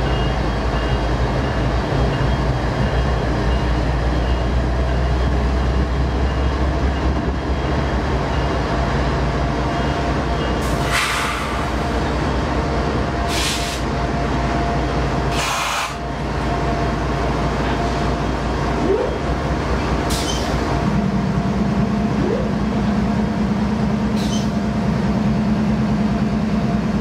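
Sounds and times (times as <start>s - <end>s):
diesel locomotives rumbling: 0.0s - 27.0s
short air hisses: 10.8s - 11.7s, 13.3s - 13.8s, 15.3s - 16.0s.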